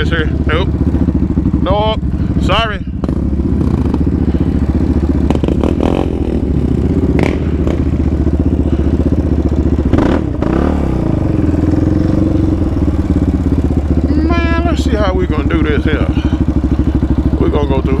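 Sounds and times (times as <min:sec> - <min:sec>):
quad engine running: 0:00.0 - 0:18.0.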